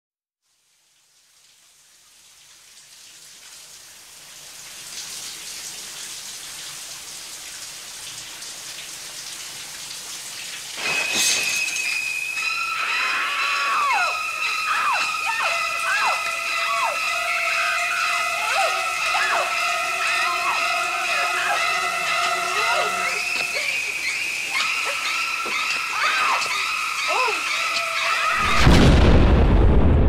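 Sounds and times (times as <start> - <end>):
falling water hiss: 0.6 - 29.5
high-pitched held tones: 10.8 - 27.9
sudden loud burst: 28.4 - 30.0.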